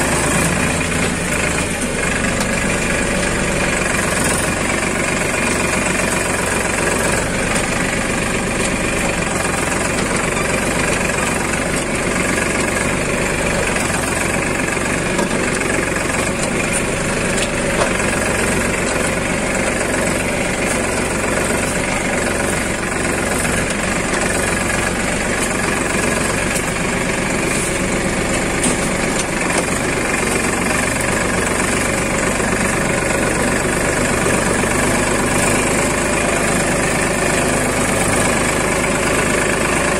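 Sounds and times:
tractor diesel engine under load: 0:00.0 - 0:39.9.

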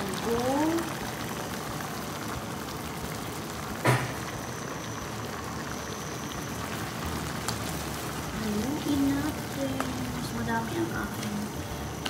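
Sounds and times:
broth simmering and bubbling: 0:00.0 - 0:12.0
sharp knock: 0:03.8 - 0:04.2.

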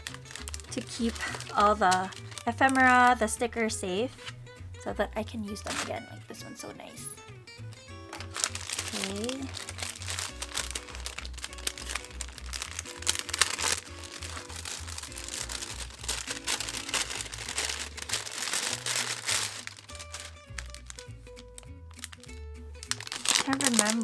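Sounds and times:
paper crinkling and rustling: 0:00.0 - 0:03.1, 0:05.6 - 0:06.0, 0:08.1 - 0:22.2, 0:22.8 - 0:24.0
background music with bass line: 0:00.0 - 0:24.0.

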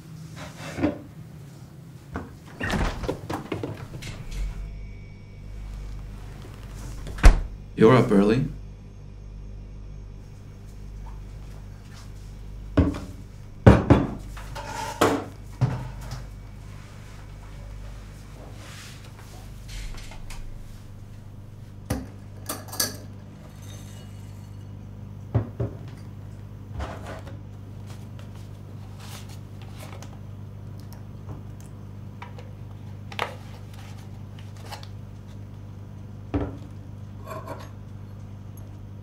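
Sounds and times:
steady low hum: 0:00.0 - 0:39.0
dishes and cutlery clinking: 0:37.2 - 0:37.8.

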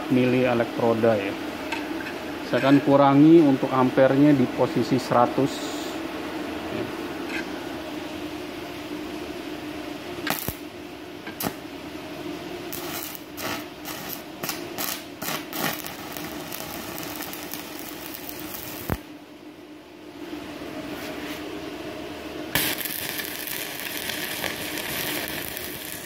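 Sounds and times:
arc snapping off: 0:10.2 - 0:10.6, 0:12.7 - 0:19.1
welding arc crackling: 0:10.2 - 0:10.6, 0:11.3 - 0:11.6, 0:12.7 - 0:19.1, 0:22.5 - 0:26.0.

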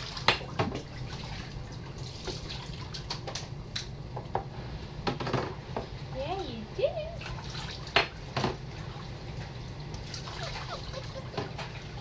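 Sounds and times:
water splashing in a sink: 0:00.0 - 0:03.5, 0:07.2 - 0:12.0.

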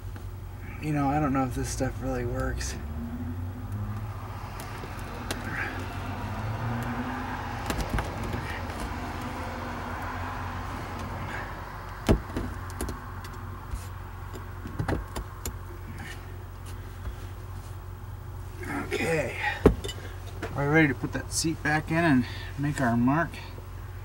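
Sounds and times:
road traffic noise: 0:00.0 - 0:24.0
sharp clicks and knocks: 0:12.0 - 0:13.4, 0:14.3 - 0:15.6.

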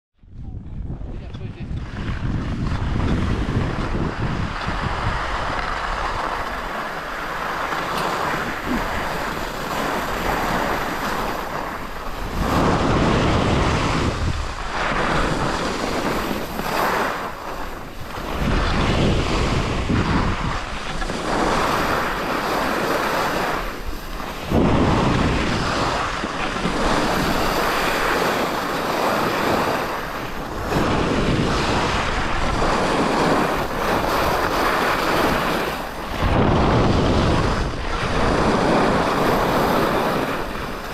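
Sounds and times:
wind rushing over microphone: 0:00.2 - 0:40.9
skis scraping over hard snow: 0:01.5 - 0:40.9.

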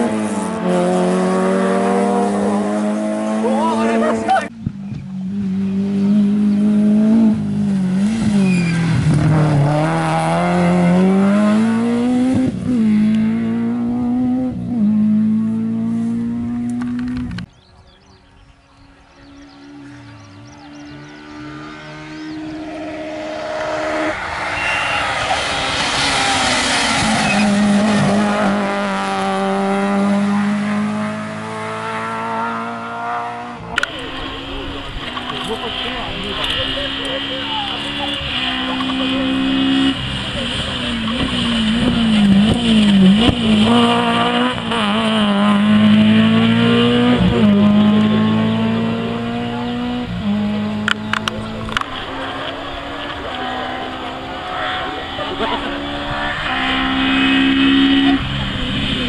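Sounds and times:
rally car engine running hard: 0:19.2 - 0:59.0.

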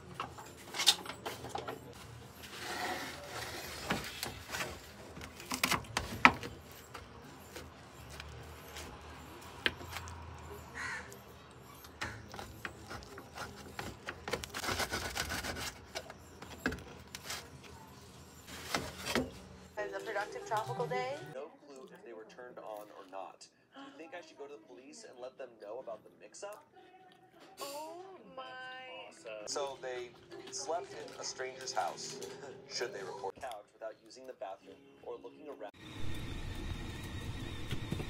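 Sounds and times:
knife scraping pizza crust: 0:01.8 - 0:10.7, 0:11.7 - 0:19.4.

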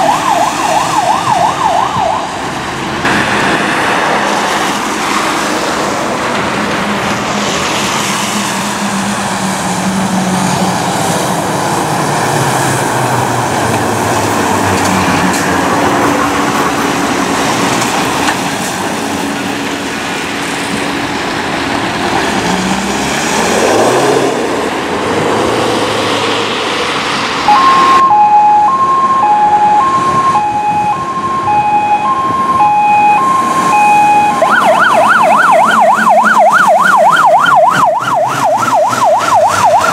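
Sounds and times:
two-tone siren: 0:00.0 - 0:02.4, 0:27.5 - 0:39.9
diesel engine noise: 0:00.0 - 0:39.9.

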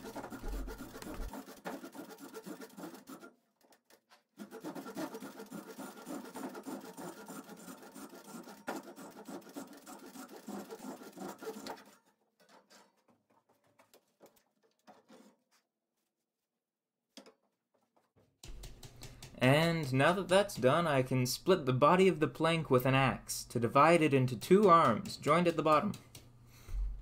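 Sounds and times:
hand saw rasping through wood: 0:00.0 - 0:03.4, 0:04.4 - 0:13.1.

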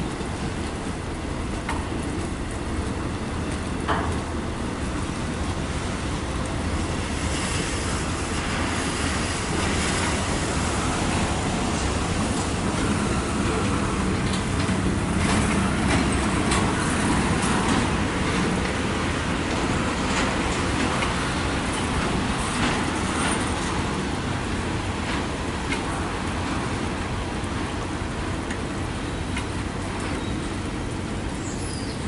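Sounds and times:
rail joint clicks: 0:00.0 - 0:32.0
steel wheels rumbling on rail: 0:00.0 - 0:32.0.

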